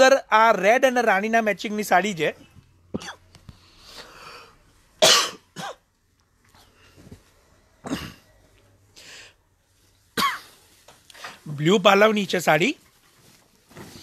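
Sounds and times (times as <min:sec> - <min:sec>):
person coughing: 0:02.9 - 0:03.3, 0:05.0 - 0:05.8, 0:07.8 - 0:08.3, 0:10.2 - 0:10.6
fabric rustling: 0:06.2 - 0:07.8, 0:09.6 - 0:14.0.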